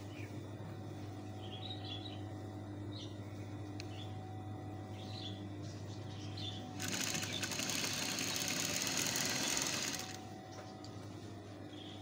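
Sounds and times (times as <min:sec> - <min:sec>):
sewing machine stitching: 0:06.8 - 0:10.2.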